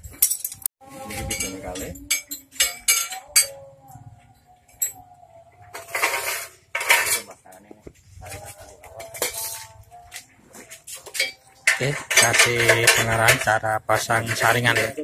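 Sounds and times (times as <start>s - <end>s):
sheet metal clinks: 0.2s - 3.7s
metal scraping rattles: 5.7s - 7.4s, 11.0s - 15.0s.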